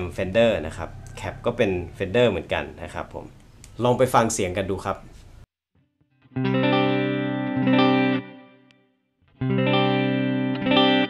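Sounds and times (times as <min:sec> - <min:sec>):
clean electric guitar chords: 0:05.8 - 0:11.0.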